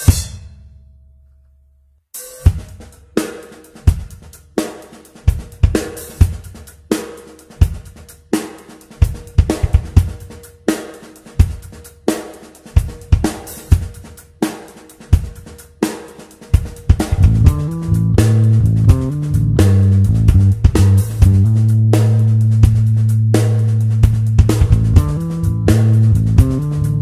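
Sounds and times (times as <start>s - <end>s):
drum kit playing steady beat: 0.0s - 0.7s, 2.2s - 27.0s.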